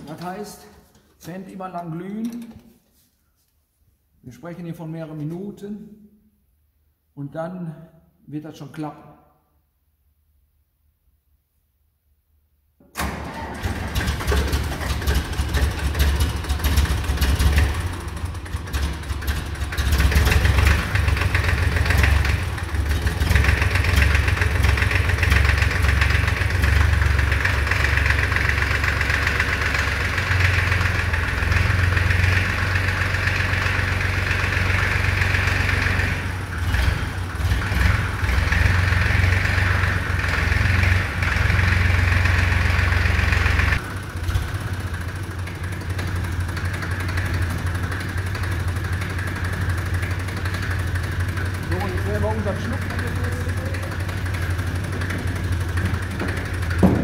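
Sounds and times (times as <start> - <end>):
tractor diesel engine idling: 13.0 - 57.0.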